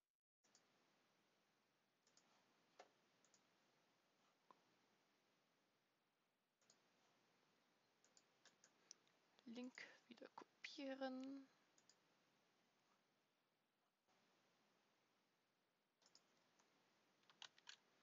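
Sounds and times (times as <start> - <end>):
faint clicks: 11.2 - 12.0, 16.0 - 17.8.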